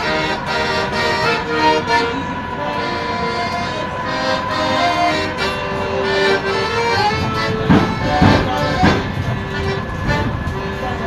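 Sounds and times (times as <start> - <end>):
accordion melody: 0.0 - 11.0
sharp knocks: 7.5 - 9.2.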